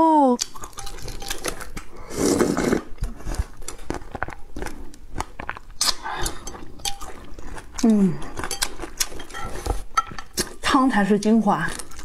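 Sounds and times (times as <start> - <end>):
wet chewing: 0.4 - 12.0
person slurping noodles: 2.0 - 3.6.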